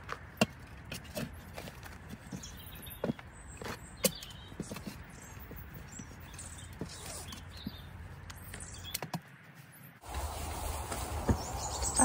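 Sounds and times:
outdoor background noise: 0.0 - 12.0
compost scraping and rustling: 9.7 - 12.0.

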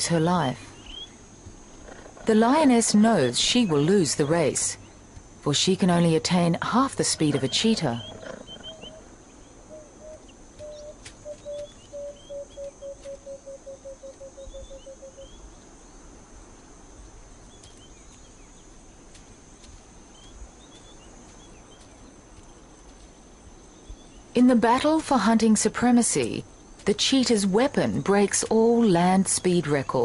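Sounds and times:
high insect drone: 0.0 - 30.0
bird hooting: 7.2 - 15.5.

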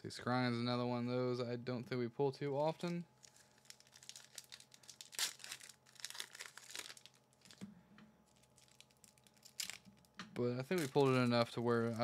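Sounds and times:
cards rustling: 10.6 - 12.0.

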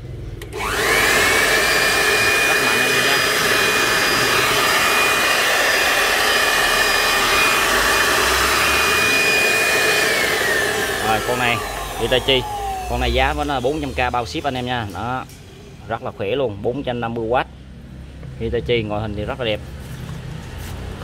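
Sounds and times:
electric blower motor whine: 0.4 - 16.0.

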